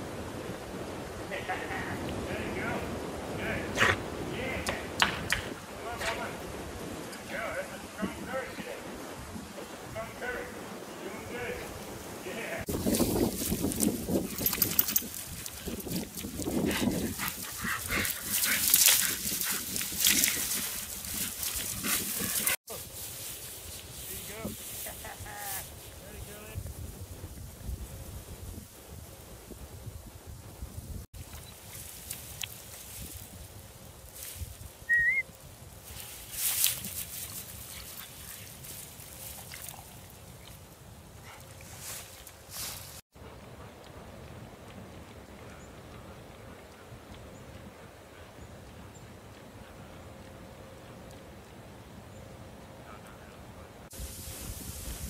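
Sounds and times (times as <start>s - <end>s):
faint outdoor background: 0.0s - 55.0s
dry grass rustling: 5.5s - 43.0s, 53.9s - 55.0s.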